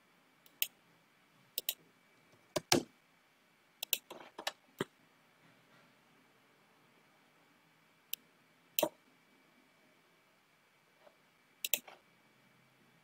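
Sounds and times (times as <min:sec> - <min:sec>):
computer mouse clicking: 0:01.6 - 0:01.8, 0:03.8 - 0:04.6, 0:11.6 - 0:12.0.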